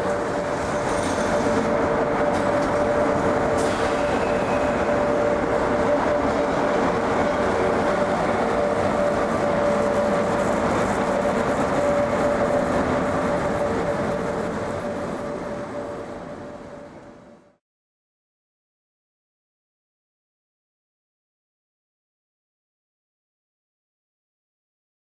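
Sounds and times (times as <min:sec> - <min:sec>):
wheels rumbling on rails: 0:00.0 - 0:17.5
train passing: 0:00.0 - 0:17.6.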